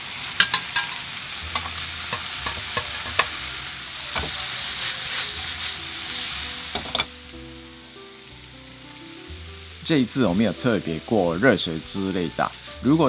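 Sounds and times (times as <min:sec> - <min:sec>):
food sizzling in frying pan: 0:00.0 - 0:13.0.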